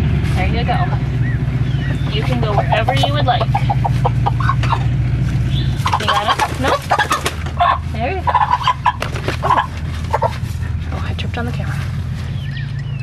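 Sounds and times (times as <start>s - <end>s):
steady low hum: 0.0s - 13.0s
chickens clucking and squawking: 0.9s - 10.9s.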